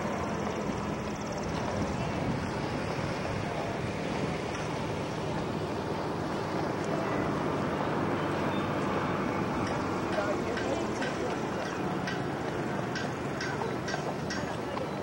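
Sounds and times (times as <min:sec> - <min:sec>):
wind on microphone: 0:00.0 - 0:06.4.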